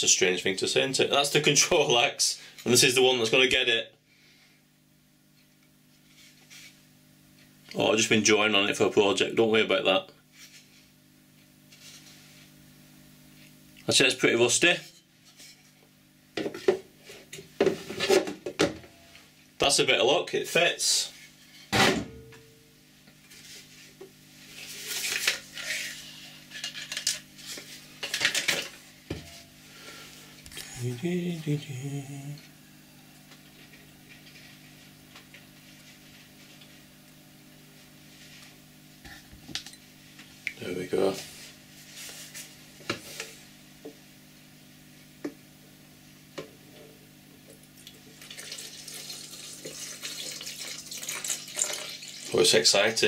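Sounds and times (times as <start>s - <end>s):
faint steady hum: 0.0s - 53.0s
liquid pouring into tub: 47.8s - 52.4s.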